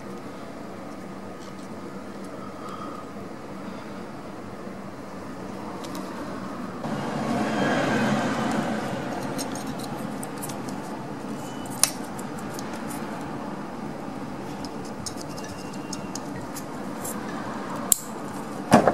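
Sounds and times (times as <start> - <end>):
steady background hiss: 0.0 - 18.9
small plastic and metal parts rattling: 14.5 - 17.2.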